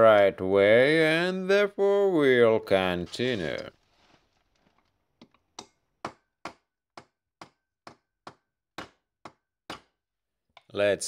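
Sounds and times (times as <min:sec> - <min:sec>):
hammer tapping metal tube: 0:05.6 - 0:10.0.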